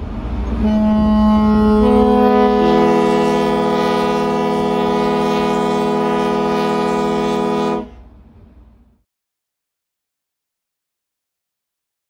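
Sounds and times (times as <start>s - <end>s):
ship's whistle blast: 0.6s - 8.0s.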